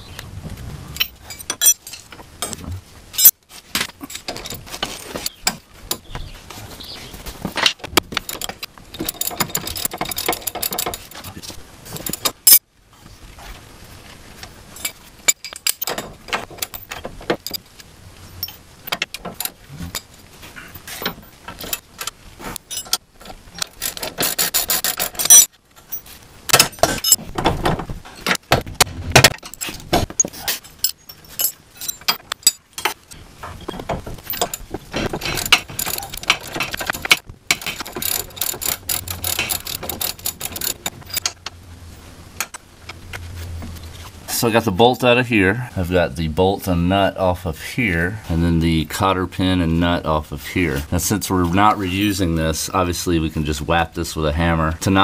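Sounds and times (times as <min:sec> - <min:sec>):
metal wrenches clinking: 0:00.9 - 0:02.6, 0:03.2 - 0:06.1, 0:07.6 - 0:12.6, 0:14.8 - 0:17.6, 0:18.4 - 0:27.2, 0:29.1 - 0:33.0, 0:33.6 - 0:41.5
hand ratchet clicking: 0:35.3 - 0:41.3.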